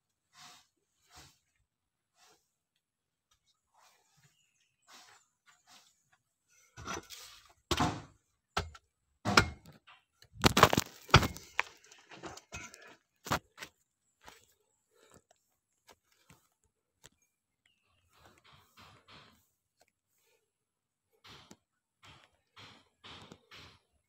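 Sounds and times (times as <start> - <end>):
digging tool scraping earth: 0.2 - 2.6, 3.8 - 8.7, 10.3 - 13.8
digging tool thudding into earth: 7.7 - 9.7, 10.4 - 11.6.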